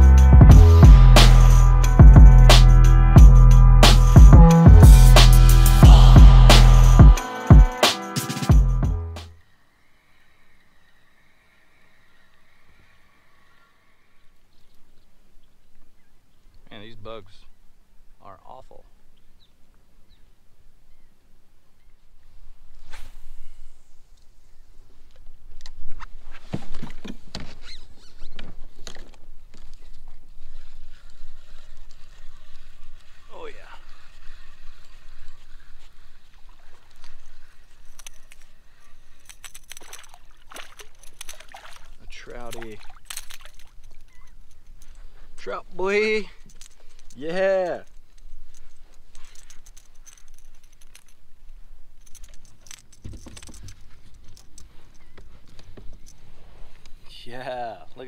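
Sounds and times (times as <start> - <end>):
low rumble: 4.8 - 7.1
fishing reel gear whirring: 29.6 - 45.0.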